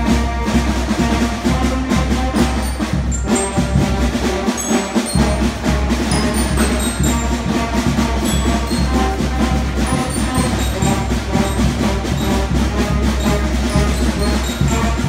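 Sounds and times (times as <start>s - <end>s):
concert band playing: 0.0s - 15.0s.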